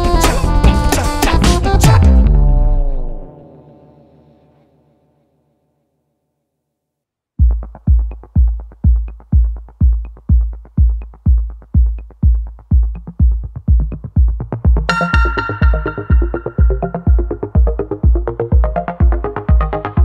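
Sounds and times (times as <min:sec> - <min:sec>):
drum machine kick: 0:07.4 - 0:20.0
synthesizer chords: 0:14.9 - 0:20.0.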